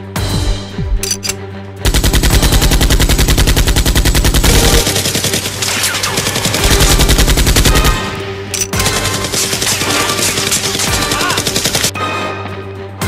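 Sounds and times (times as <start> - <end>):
automatic gunfire bursts: 1.9 - 8.1, 8.8 - 11.9.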